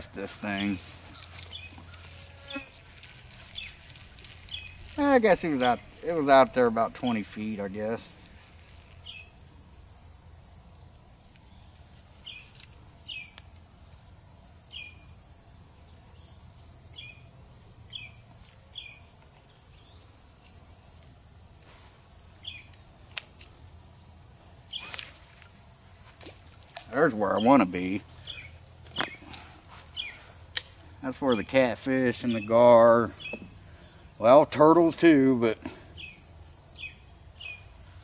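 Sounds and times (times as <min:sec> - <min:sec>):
low background noise: 0:00.0 - 0:38.0
bird chirping: 0:00.6 - 0:06.1, 0:08.5 - 0:09.3, 0:27.2 - 0:30.3, 0:31.2 - 0:34.0, 0:36.0 - 0:37.8.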